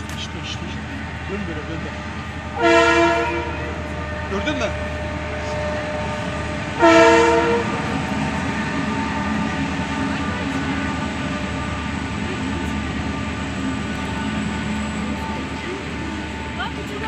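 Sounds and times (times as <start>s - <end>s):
train engine and wagons rumbling: 0.0s - 17.0s
train horn blast: 2.0s - 13.4s.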